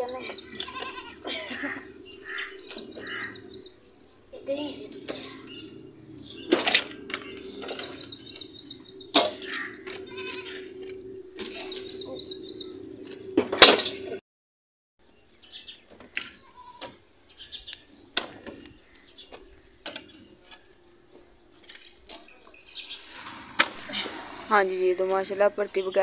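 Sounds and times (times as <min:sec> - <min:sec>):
goat bleating: 0:00.2 - 0:03.4, 0:09.9 - 0:10.7.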